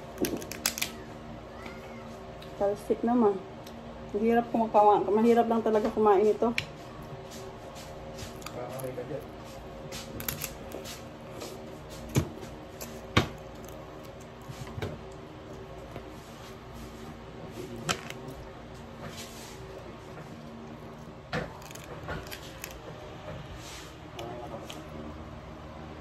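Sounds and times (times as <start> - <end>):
steady low hum: 0.0 - 26.0
crab shell clicks and knocks: 0.2 - 0.9.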